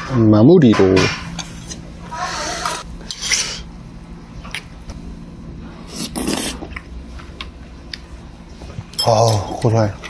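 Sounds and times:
person slurping soup: 0:05.8 - 0:06.8.

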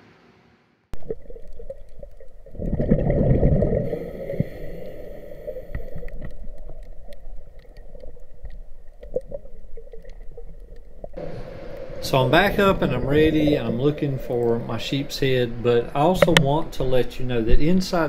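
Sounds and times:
diver exhaling bubbles underwater: 0:01.0 - 0:08.3
faint clicks: 0:05.6 - 0:11.9
regulator hiss: 0:11.2 - 0:18.0.

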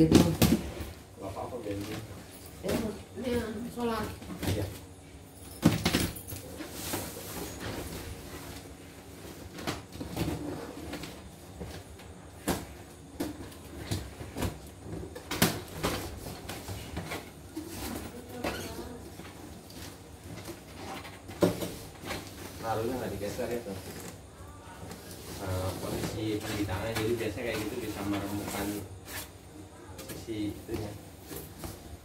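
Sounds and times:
bubble wrap and plastic rustling: 0:00.3 - 0:05.0, 0:05.8 - 0:32.0.

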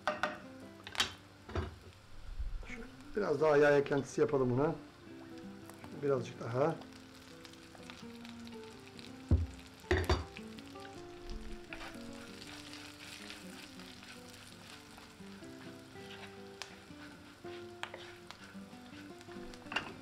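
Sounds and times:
food sizzling in a frying pan: 0:00.0 - 0:20.0
wooden spoon stirring: 0:10.8 - 0:20.0.

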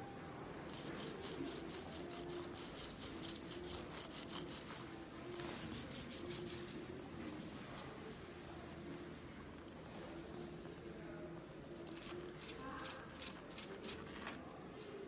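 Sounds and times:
brush scrubbing bicycle chain: 0:00.7 - 0:04.9.

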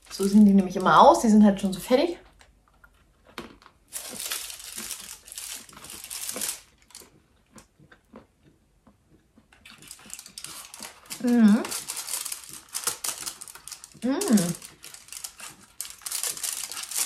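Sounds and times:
plastic packaging crinkling: 0:02.4 - 0:07.2, 0:09.6 - 0:17.0.

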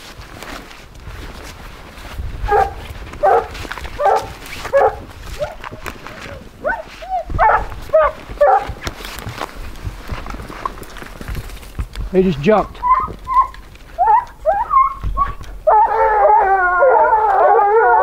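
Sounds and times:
hounds barking: 0:02.4 - 0:05.7, 0:06.3 - 0:08.8, 0:12.8 - 0:18.0.

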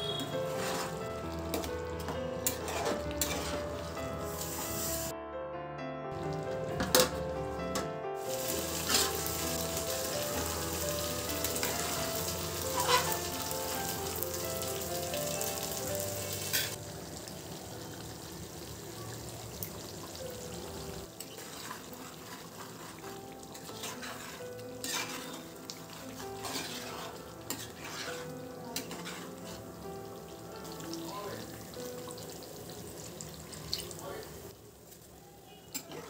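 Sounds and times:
gravy sizzling and bubbling in pot: 0:00.0 - 0:05.1, 0:08.2 - 0:36.0
spoon stirring in pot: 0:00.1 - 0:03.8, 0:12.7 - 0:13.3, 0:21.2 - 0:29.7.

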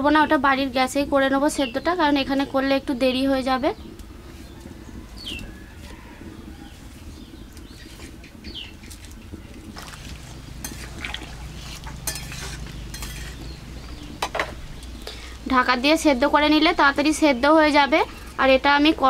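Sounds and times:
water boiling in a pan: 0:02.1 - 0:19.0
wood fire crackling: 0:03.5 - 0:19.0
bird chirps: 0:12.7 - 0:15.2.

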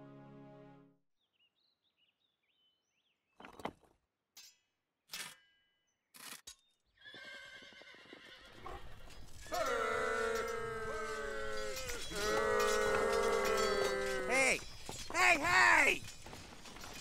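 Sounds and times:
horses neighing: 0:07.0 - 0:16.1
galloping hooves: 0:07.8 - 0:17.0.

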